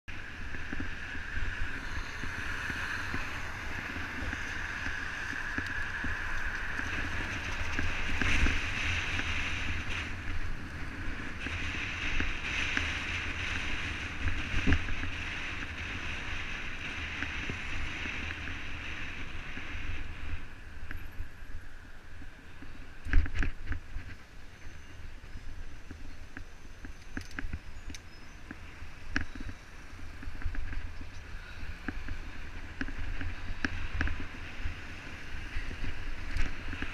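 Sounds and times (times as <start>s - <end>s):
wind buffeting microphone: 0.1s - 36.9s
tyre hiss on wet road: 0.2s - 23.0s.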